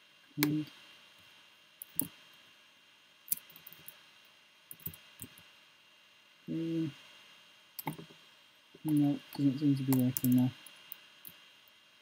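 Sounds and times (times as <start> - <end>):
man humming: 0.4 - 0.7, 6.5 - 7.0.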